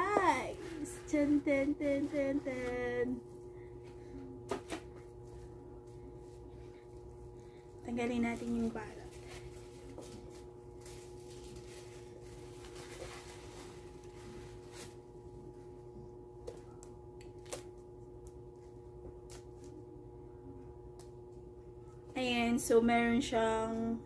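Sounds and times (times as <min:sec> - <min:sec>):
steady low hum: 0:00.0 - 0:24.0
paper bag rustling: 0:08.1 - 0:15.1.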